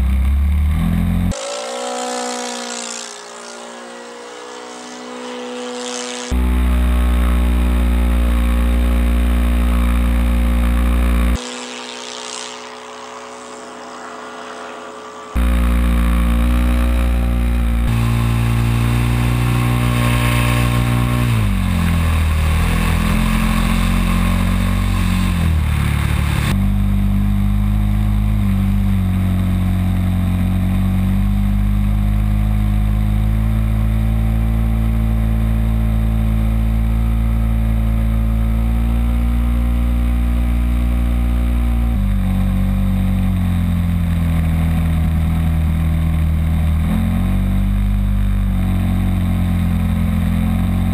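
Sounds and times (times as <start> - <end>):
light aircraft engine droning: 11.4 - 15.6.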